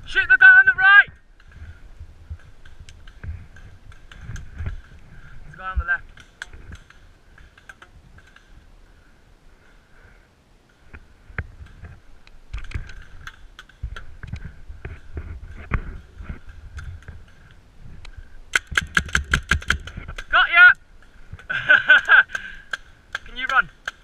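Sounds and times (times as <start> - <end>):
gear clicking and knocking: 18.5 - 20.4
rapid paintball marker shots: 18.5 - 20.4, 22.0 - 24.0.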